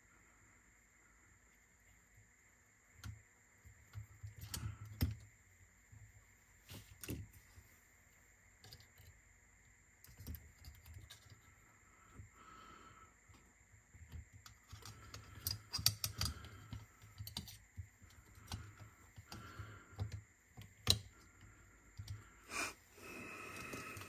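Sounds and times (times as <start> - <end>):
small clicks and knocks of parts: 2.9 - 6.1, 6.7 - 7.4, 8.5 - 12.3, 13.2 - 22.4.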